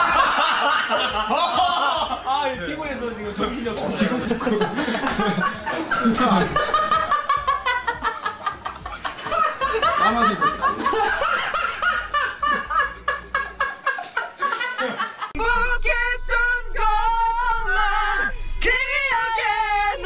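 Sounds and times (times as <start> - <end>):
young men laughing: 0.0 - 2.6, 3.4 - 15.8
man singing loudly: 15.4 - 20.0.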